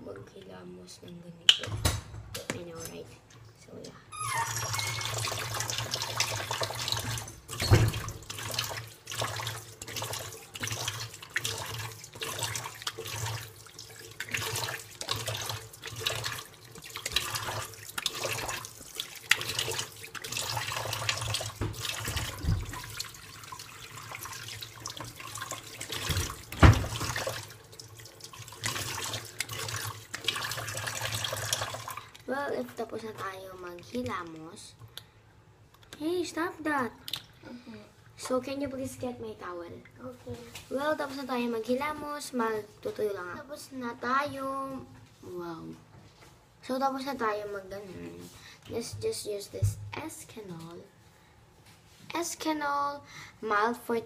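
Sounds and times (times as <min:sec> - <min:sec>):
tap water running into sink: 0:04.5 - 0:34.5
water splashing on face: 0:04.9 - 0:32.1.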